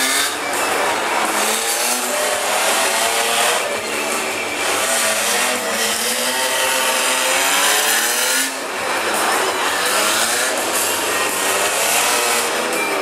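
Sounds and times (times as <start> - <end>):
car engine revving hard: 0.0 - 13.0.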